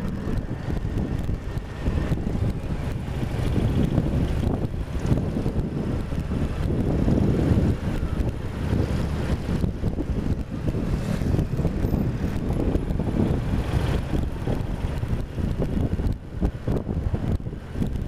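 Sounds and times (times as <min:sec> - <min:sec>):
motorcycle engine rumble: 0:00.0 - 0:18.0
wind buffeting microphone: 0:00.0 - 0:18.0.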